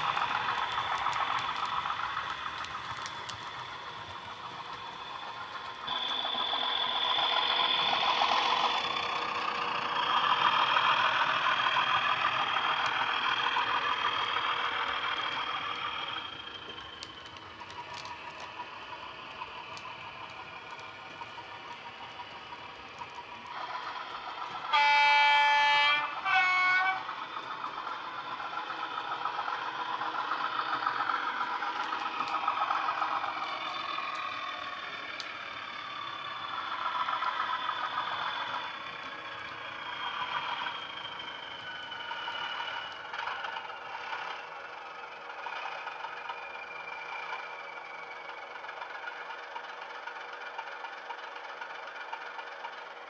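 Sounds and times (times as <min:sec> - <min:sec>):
diesel engine sound from speaker: 0:00.0 - 0:53.0
diesel locomotive horn blast: 0:24.6 - 0:27.1.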